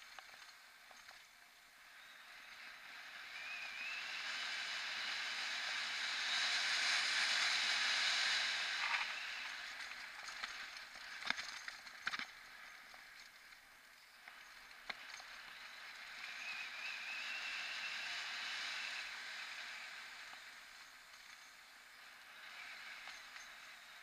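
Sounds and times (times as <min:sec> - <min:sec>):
faint high whine: 0:00.0 - 0:24.0
tyre and wind hiss: 0:01.8 - 0:24.0
bike clicks: 0:08.8 - 0:15.6.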